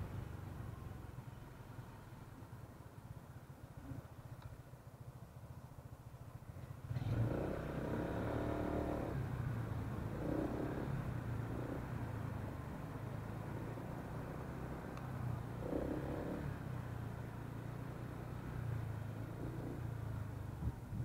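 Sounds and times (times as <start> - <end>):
scooter engine starting and revving: 6.8 - 12.3.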